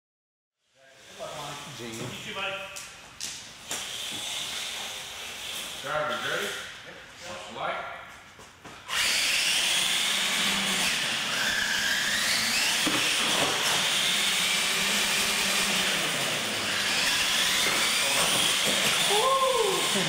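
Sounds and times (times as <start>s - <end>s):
electric motors and tires hissing: 3.5s - 6.8s, 8.8s - 20.0s
high motor whines: 8.9s - 20.0s.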